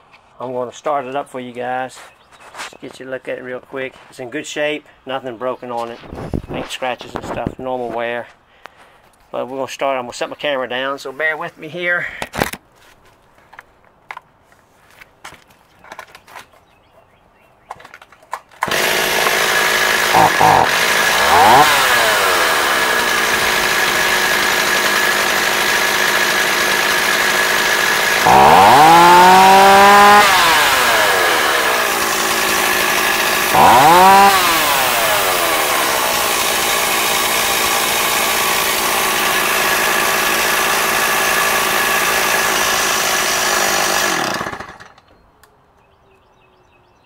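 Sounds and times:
chainsaw engine idling and revving: 18.6s - 45.1s.

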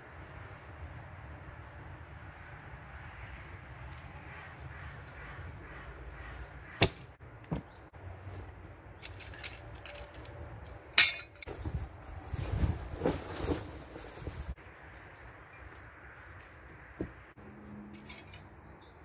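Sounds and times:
heavy canvas snapping and rustling: 11.7s - 14.5s.

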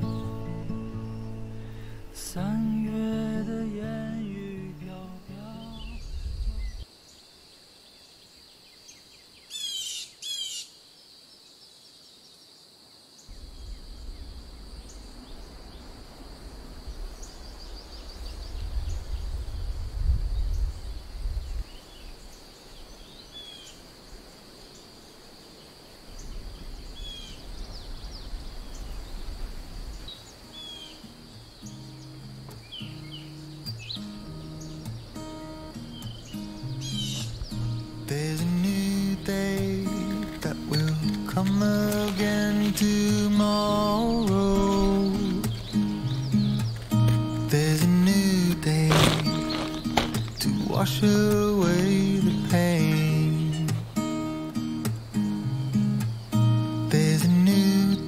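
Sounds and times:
birds chirping: 0.0s - 12.6s, 13.2s - 19.7s, 20.4s - 58.0s
low rumble: 5.1s - 6.8s.

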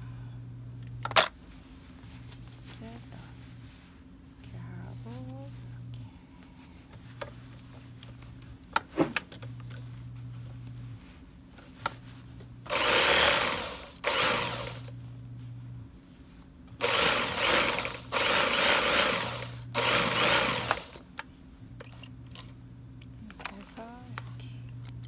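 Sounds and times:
sewing machine stitching: 12.7s - 14.9s, 16.8s - 21.0s.

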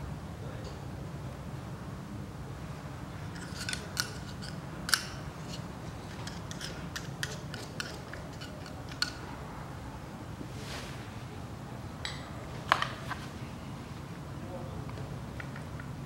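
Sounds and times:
screwdriver clicking and scraping metal: 3.4s - 9.2s.

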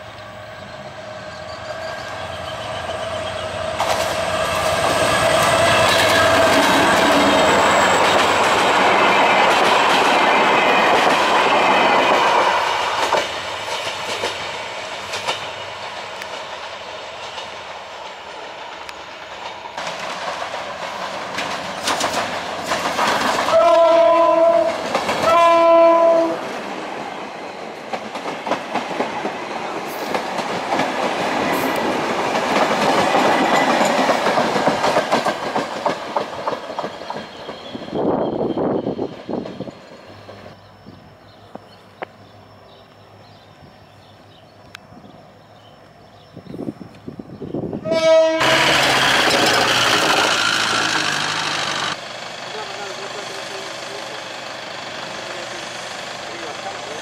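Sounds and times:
train wheels clattering: 1.8s - 40.6s, 48.0s - 57.0s
diesel locomotive horn blasts: 23.5s - 26.4s, 47.8s - 49.2s.

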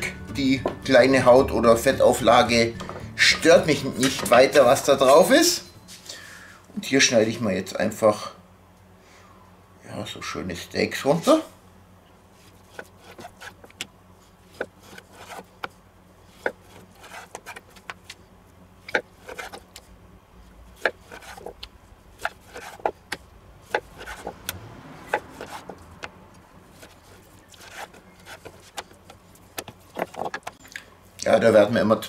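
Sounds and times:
knife scraping through meat: 14.8s - 15.5s, 16.4s - 17.7s, 20.8s - 21.6s, 22.2s - 23.0s, 26.7s - 29.0s.

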